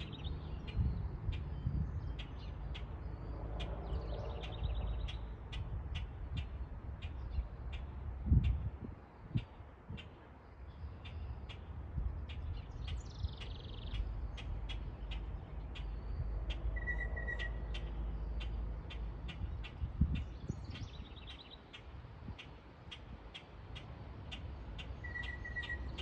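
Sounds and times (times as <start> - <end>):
small songbirds chirping: 0.0 - 26.0.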